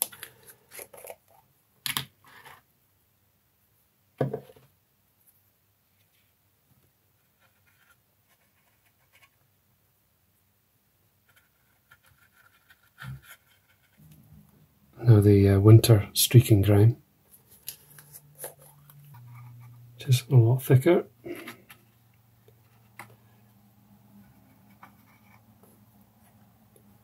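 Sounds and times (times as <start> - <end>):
paintbrush scratching on plastic: 11.3 - 14.0, 17.3 - 19.8, 24.2 - 25.6.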